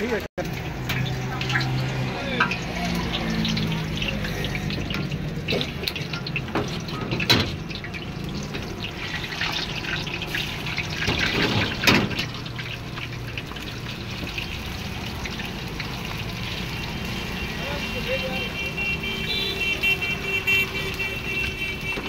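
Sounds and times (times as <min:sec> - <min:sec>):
hot oil sizzling and crackling: 0:00.0 - 0:22.0.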